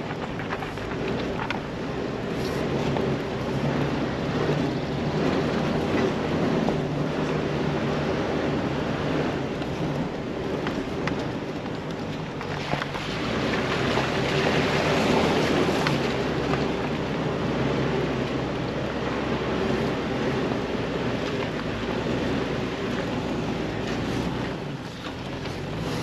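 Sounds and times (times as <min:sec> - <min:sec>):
sharp clicks and knocks: 0:00.0 - 0:01.7
engine drone: 0:00.0 - 0:26.0
tyres on rocky trail: 0:00.0 - 0:26.0.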